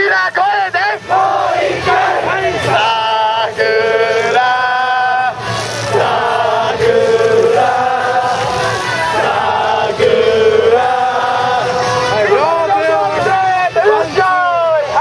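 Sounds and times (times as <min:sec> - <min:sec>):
crowd chanting in unison: 0:00.0 - 0:14.2.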